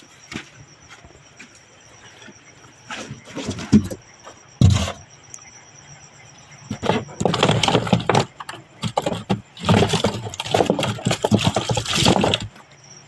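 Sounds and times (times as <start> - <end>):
fish and tubs knocking in box: 4.6 - 5.0, 6.7 - 12.6.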